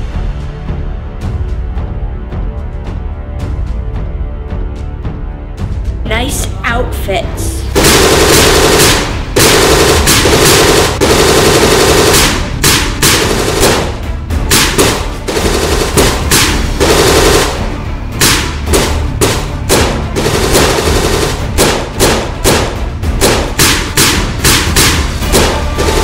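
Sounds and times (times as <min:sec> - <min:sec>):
rapid automatic gunfire: 0:07.8 - 0:26.0.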